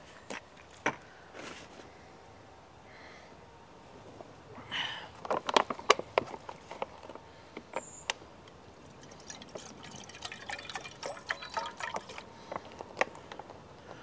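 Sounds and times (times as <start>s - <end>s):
water pouring into metal cup: 8.8s - 12.3s.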